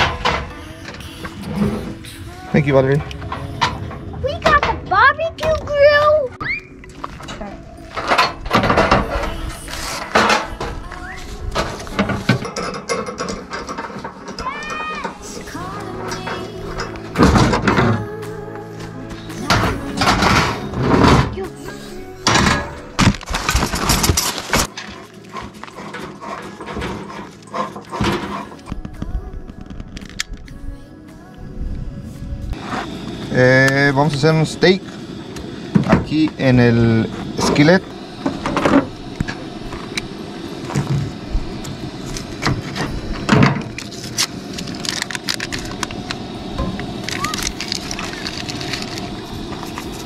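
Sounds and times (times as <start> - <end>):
steady low rumble: 0.2 - 12.5, 28.7 - 50.0
butter wrapper rustling: 47.1 - 49.2.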